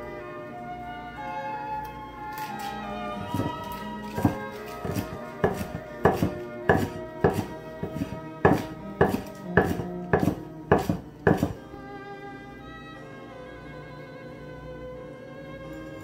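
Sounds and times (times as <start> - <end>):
soft background music: 0.0 - 16.0
cleaver chopping on wooden board: 3.2 - 3.6, 4.2 - 11.6.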